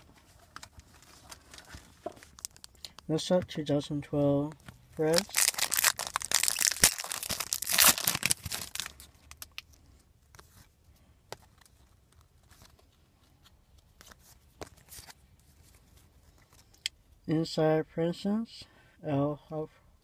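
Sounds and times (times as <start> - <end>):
wrapper tearing and crinkling: 1.0 - 2.8, 5.0 - 9.6.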